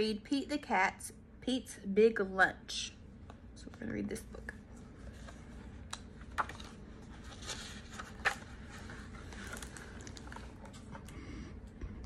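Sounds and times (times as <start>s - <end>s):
paper rustling: 5.0s - 11.0s.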